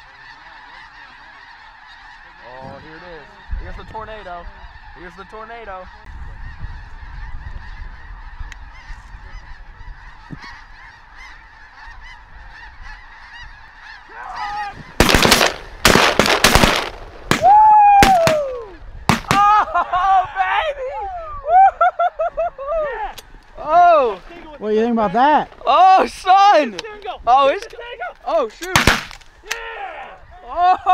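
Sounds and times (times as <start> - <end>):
geese honking: 0.0 - 17.4, 21.8 - 29.6
shotgun blasts: 15.0 - 18.5, 19.1 - 19.4, 28.7 - 29.3.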